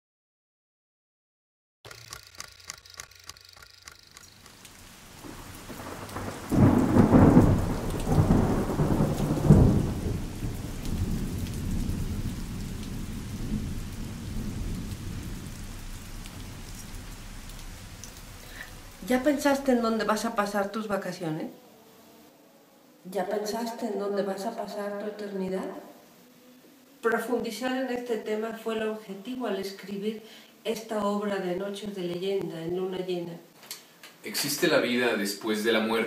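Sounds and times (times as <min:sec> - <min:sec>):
even ticking: 0:01.9 - 0:04.8
steady rain: 0:03.6 - 0:22.4, 0:23.0 - 0:33.2, 0:33.9 - 0:36.0
rolling thunder: 0:04.8 - 0:20.2.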